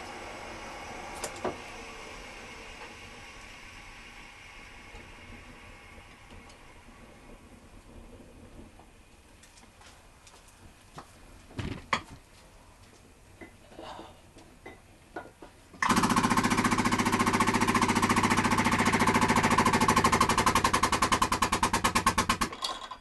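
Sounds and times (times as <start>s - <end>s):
hydraulic press pump pulsing: 15.8s - 22.5s.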